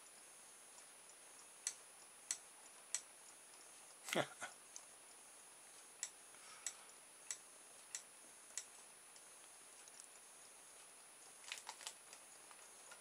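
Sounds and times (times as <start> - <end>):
faint regular ticking clicks: 0.0 - 13.0.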